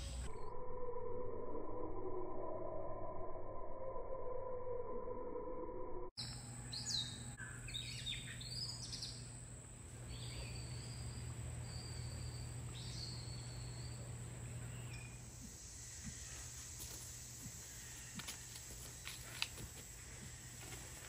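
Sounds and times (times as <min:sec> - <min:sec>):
steady low hum: 0:05.9 - 0:21.0
birds chirping and whistling: 0:06.2 - 0:09.4, 0:10.0 - 0:16.6.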